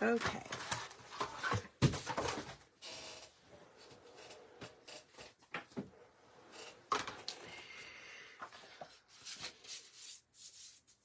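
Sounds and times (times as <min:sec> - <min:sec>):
paper rustling and sliding: 0:08.4 - 0:11.0.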